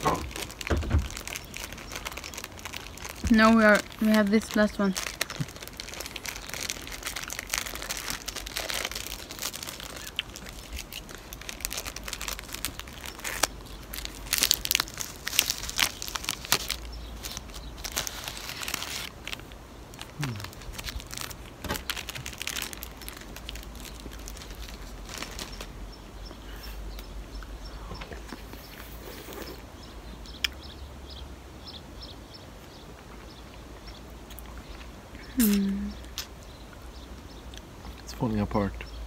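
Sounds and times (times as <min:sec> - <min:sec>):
plastic wrapper crinkling and tearing: 0:00.0 - 0:25.8.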